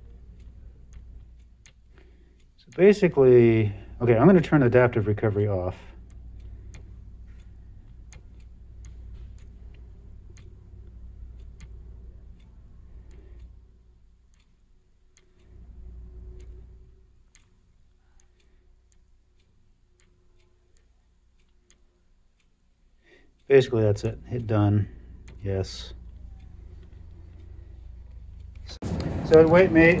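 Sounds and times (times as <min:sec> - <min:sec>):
low rumble: 0:26.0 - 0:30.0.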